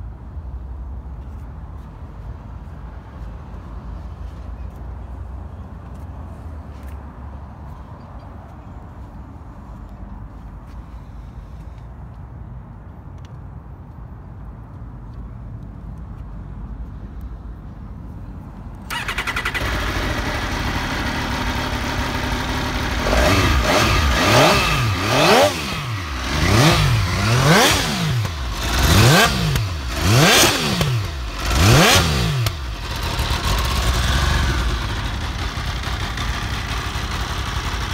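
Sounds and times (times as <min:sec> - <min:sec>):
motorcycle engine idling and revving: 0:18.8 - 0:37.9.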